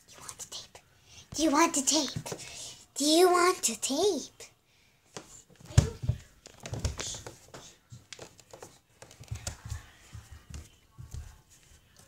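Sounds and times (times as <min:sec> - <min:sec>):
soft bumps and knocks: 0:05.2 - 0:11.4.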